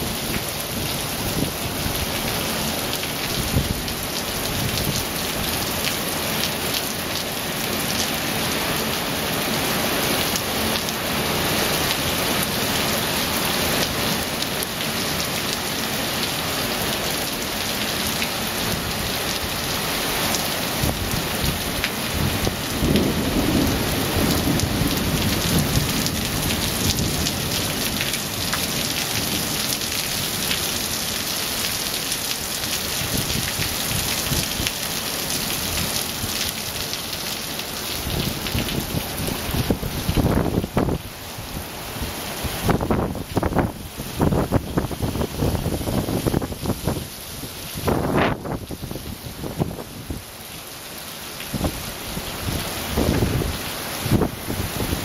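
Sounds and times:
heavy rain on paving: 0:00.0 - 0:55.0
low rumble of thunder: 0:22.3 - 0:28.1.

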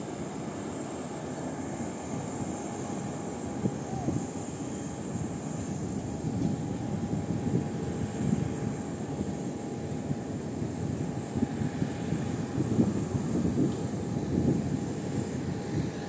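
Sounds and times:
faint engine whine: 0:00.0 - 0:16.0
jet engine rush: 0:00.0 - 0:16.0.

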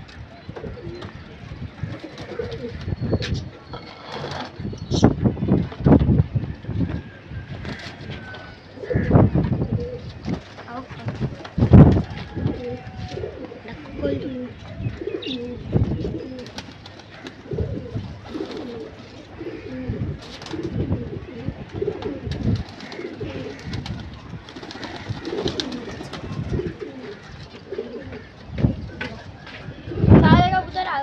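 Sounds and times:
pigeons cooing: 0:00.4 - 0:05.7, 0:06.5 - 0:31.0.

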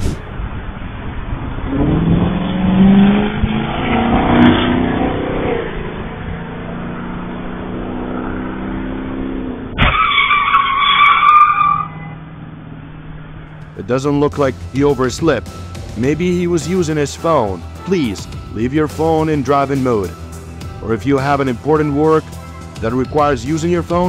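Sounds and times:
traffic passing: 0:00.0 - 0:24.0
loud tyre squeal: 0:09.8 - 0:12.3.

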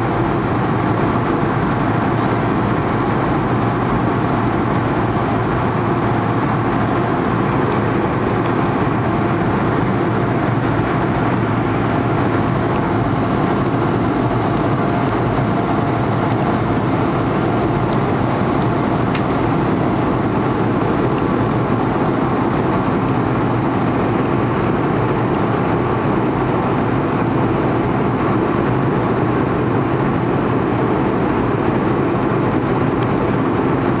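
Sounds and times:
faint high whine: 0:00.0 - 0:23.8
airliner cabin engine drone: 0:00.0 - 0:34.0.

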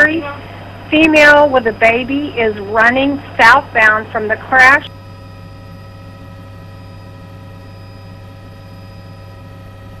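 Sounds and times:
aircraft cabin hum: 0:00.0 - 0:10.0
steady whining tones: 0:00.0 - 0:10.0.

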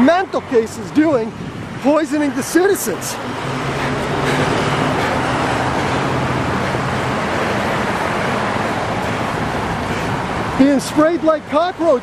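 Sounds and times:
road traffic passing: 0:00.0 - 0:12.0
low engine hum: 0:01.4 - 0:10.6.

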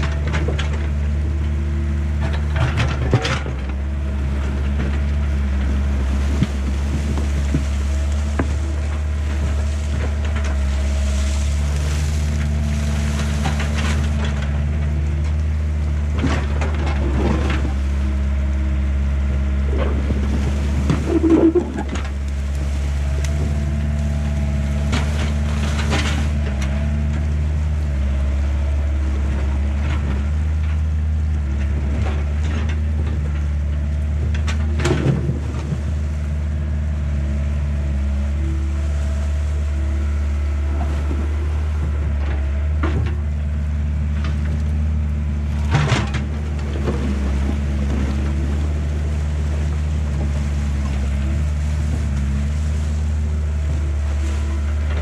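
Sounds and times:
diesel excavator engine running: 0:00.0 - 0:55.0
bucket clanks and scrapes: 0:20.7 - 0:22.2.

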